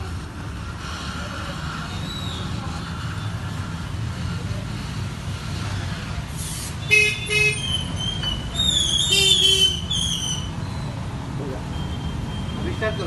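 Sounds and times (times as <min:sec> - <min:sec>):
vehicle horn toots: 0:06.8 - 0:07.6.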